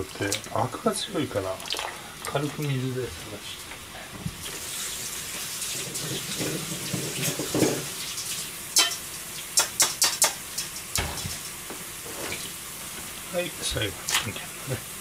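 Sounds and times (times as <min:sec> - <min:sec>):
kitchen tap running: 0:00.0 - 0:15.0
sharp clicks and knocks: 0:09.6 - 0:11.6.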